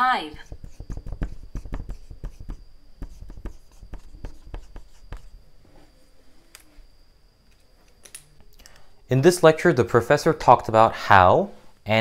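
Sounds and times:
marker writing on whiteboard: 0.3 - 5.3.

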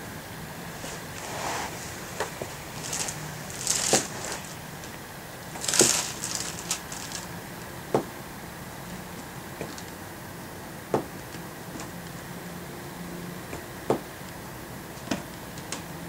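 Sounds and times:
nylon tunnel rustling: 0.7 - 7.4.

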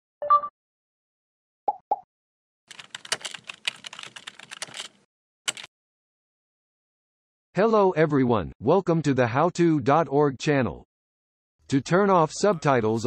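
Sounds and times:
keyboard key clicks: 2.7 - 5.7.

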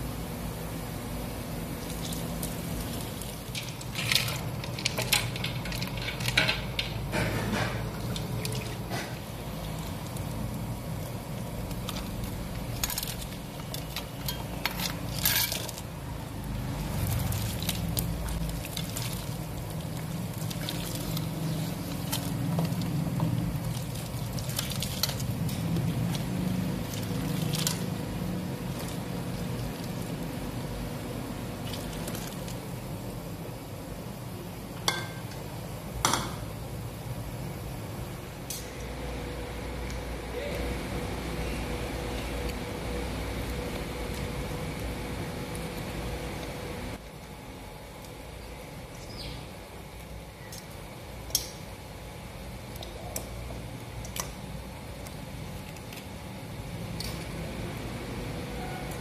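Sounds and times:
steady low hum: 0.0 - 59.0
liquid splashing in pot: 11.0 - 30.2.

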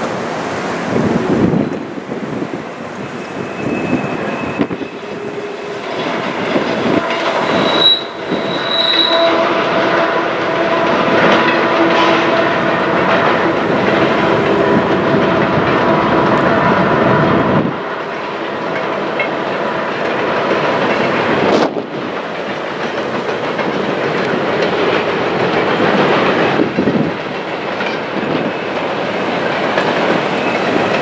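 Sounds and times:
freight cars rumbling and clattering: 0.0 - 31.0
train wheel squeal: 2.8 - 19.5, 25.7 - 31.0.

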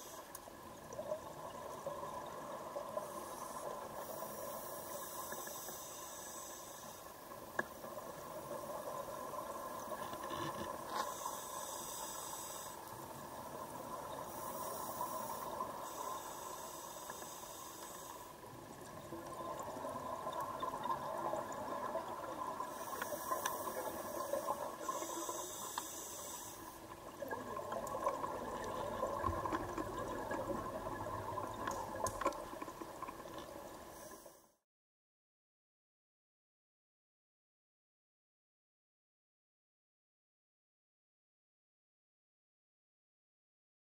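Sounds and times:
diver breathing through regulator: 11.0 - 12.9, 14.3 - 18.4, 22.7 - 26.9
bubbles: 27.0 - 33.7.

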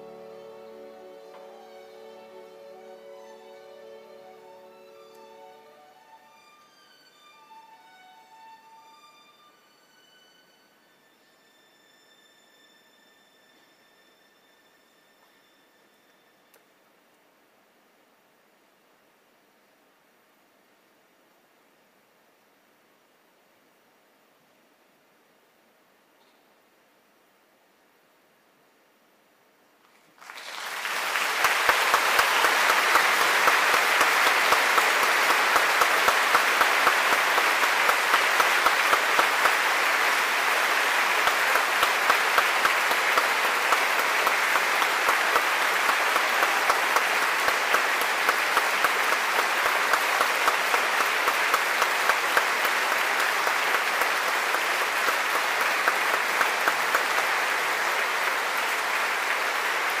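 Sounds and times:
large audience applauding: 30.0 - 60.0.

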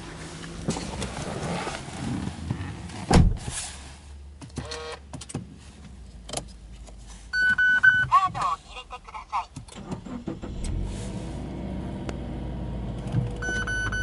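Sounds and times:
rustling inside a car: 0.0 - 8.8
car door thump: 3.1 - 3.5.

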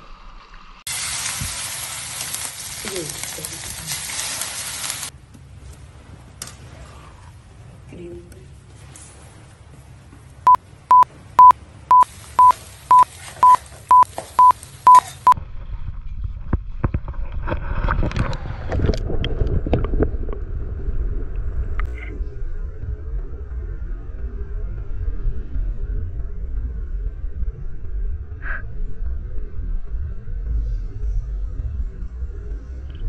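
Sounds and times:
short high beeps: 10.9 - 15.4
low rumble: 15.3 - 33.0.

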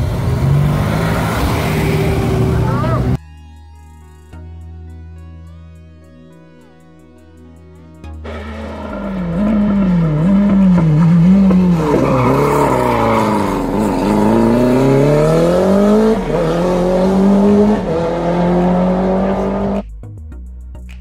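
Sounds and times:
race car engine revving: 0.0 - 3.2, 8.2 - 19.9
tyre squeal: 8.3 - 14.9.

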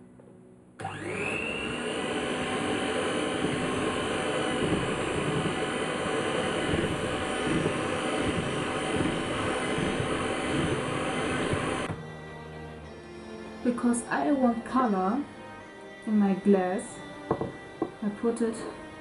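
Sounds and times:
electric hand mixer whirring: 0.8 - 12.5, 15.6 - 19.0.

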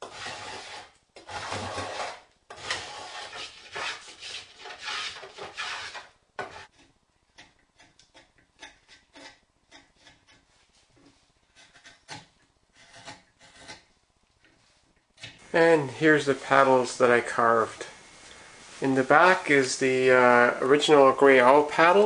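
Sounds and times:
spokeshave scraping wood: 0.0 - 13.9, 14.5 - 22.0.

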